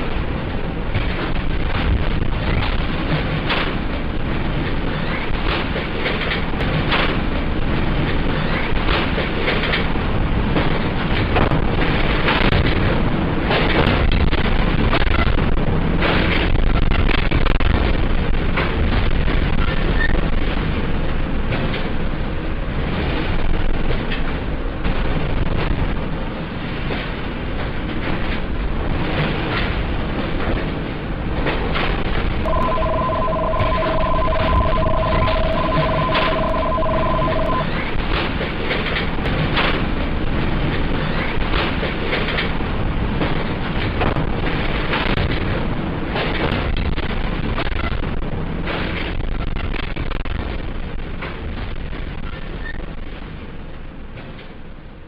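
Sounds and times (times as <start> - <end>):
earthquake rumble with crackling: 0.0 - 9.1, 10.0 - 21.7
two-tone electronic alert beeping: 32.5 - 37.8.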